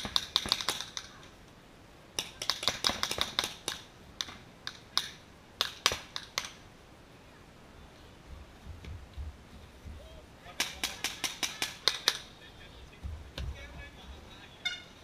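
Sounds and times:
paintball markers firing: 0:00.0 - 0:01.1, 0:02.2 - 0:06.6, 0:10.6 - 0:12.3.

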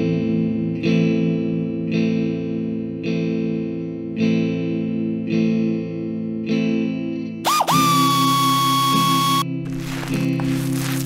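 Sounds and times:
guitar chords strummed: 0:00.0 - 0:10.9.

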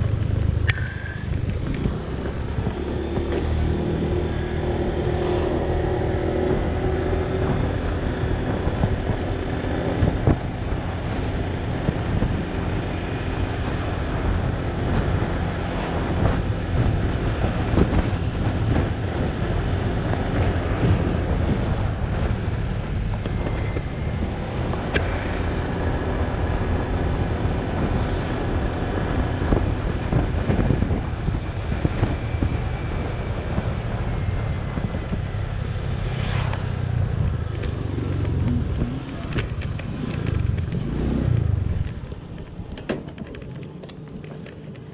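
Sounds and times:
tyres on road: 0:00.0 - 0:44.9
wind buffeting microphone: 0:00.0 - 0:44.9
scooter engine running: 0:36.7 - 0:44.9.

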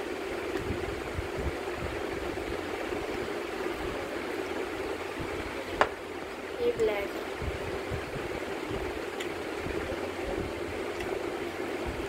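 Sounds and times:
steady rushing noise: 0:00.0 - 0:12.0.

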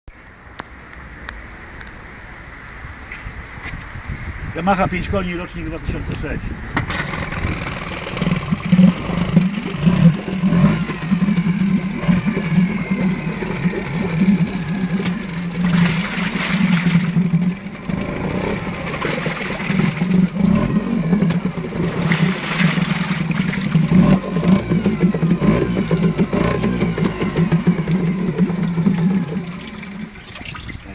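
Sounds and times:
propeller churning water: 0:04.6 - 0:30.9
outboard motor running: 0:06.7 - 0:30.9.

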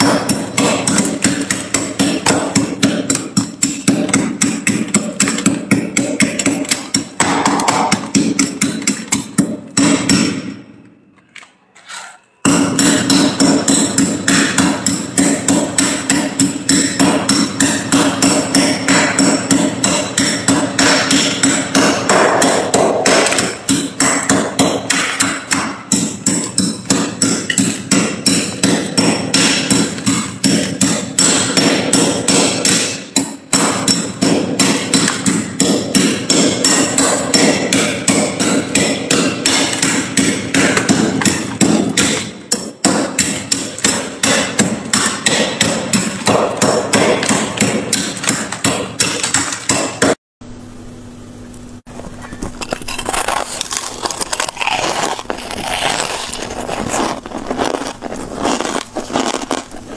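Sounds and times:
metal tool scraping frost: 0:11.8 - 0:12.4, 0:51.9 - 0:59.9.

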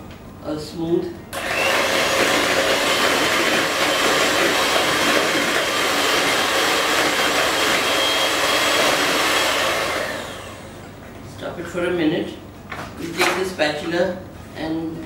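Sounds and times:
electric hand mixer whirring: 0:01.4 - 0:11.0.

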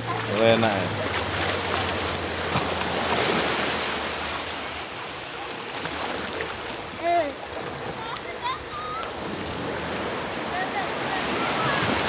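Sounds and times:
waves washing onto beach: 0:00.0 - 0:12.0.

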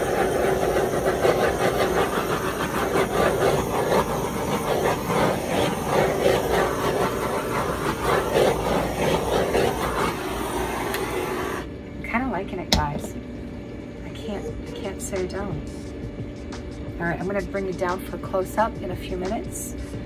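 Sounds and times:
butane torch hissing: 0:00.0 - 0:11.7.

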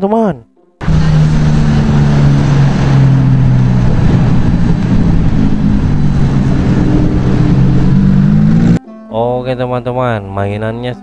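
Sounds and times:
car engine at low revs: 0:00.8 - 0:08.8.

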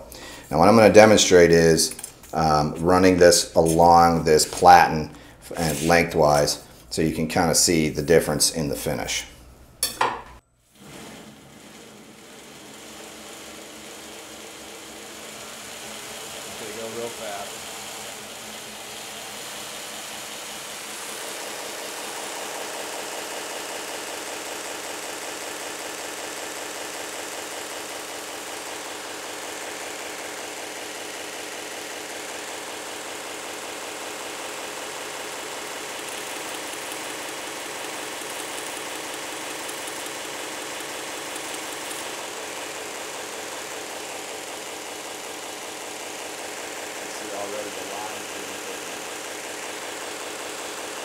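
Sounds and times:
belt grinder grinding steel blade: 0:19.3 - 0:51.0.

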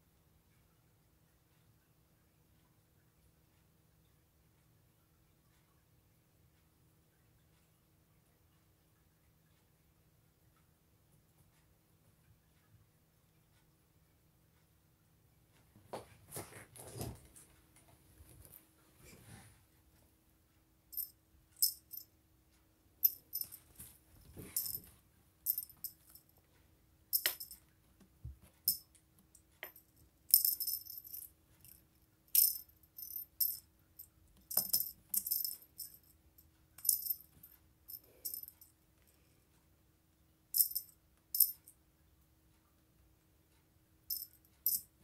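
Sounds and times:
rattle toy jingling: 0:20.9 - 0:22.0, 0:23.0 - 0:23.8, 0:24.4 - 0:24.9, 0:25.5 - 0:26.2, 0:27.1 - 0:27.6, 0:29.6 - 0:31.8, 0:32.4 - 0:33.6, 0:34.5 - 0:36.1, 0:36.8 - 0:38.5.

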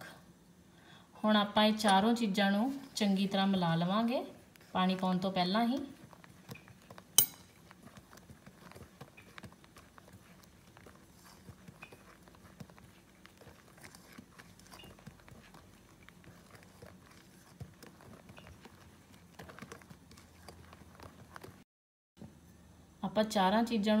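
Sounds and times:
whisk ticking and scraping glass bowl: 0:04.4 - 0:21.6.

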